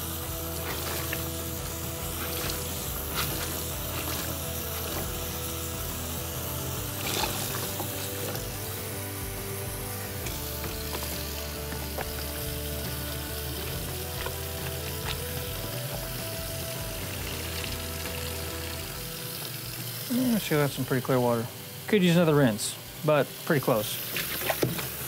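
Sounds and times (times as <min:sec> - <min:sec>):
light background music: 0:00.0 - 0:25.0
tap water running into sink: 0:00.0 - 0:25.0
water splashing in tub: 0:06.8 - 0:08.6, 0:24.0 - 0:25.0.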